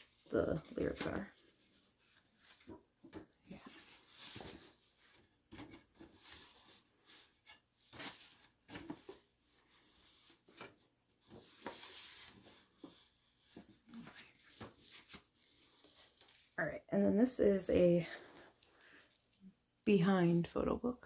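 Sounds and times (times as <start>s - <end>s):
paper rustling: 0.0s - 16.6s.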